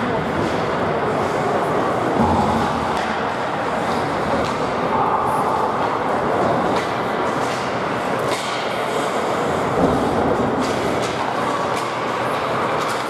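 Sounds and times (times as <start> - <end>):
skating and arena noise: 0.0 - 13.0.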